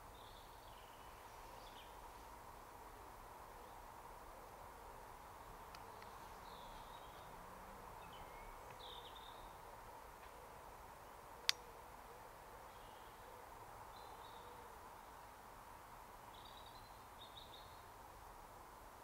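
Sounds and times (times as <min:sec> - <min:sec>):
small birds chirping: 0:05.7 - 0:07.4, 0:08.0 - 0:09.6.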